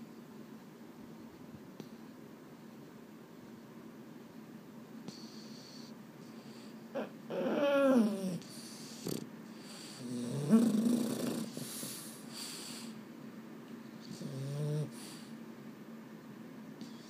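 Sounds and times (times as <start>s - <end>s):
dog hissing breaths: 5.1s - 6.9s, 8.4s - 13.1s, 14.0s - 15.4s
dog snoring: 5.1s - 12.9s, 14.0s - 15.3s.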